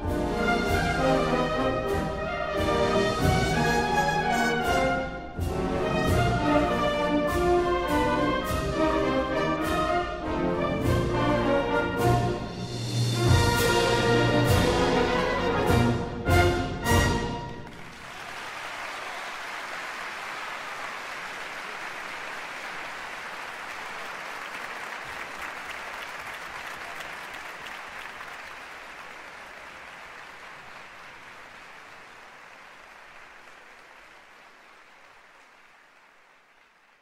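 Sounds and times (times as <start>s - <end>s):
audience applauding: 17.5s - 37.0s.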